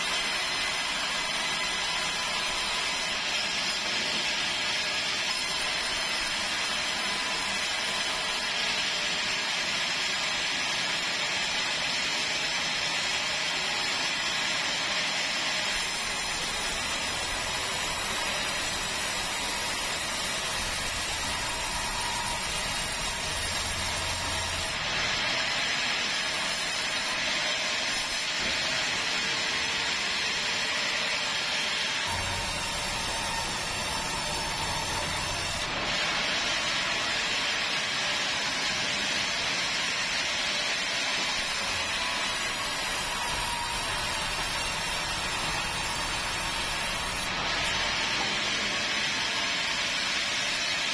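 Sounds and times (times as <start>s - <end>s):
band saw cutting log: 0.0s - 4.1s, 15.1s - 37.5s, 39.9s - 50.1s.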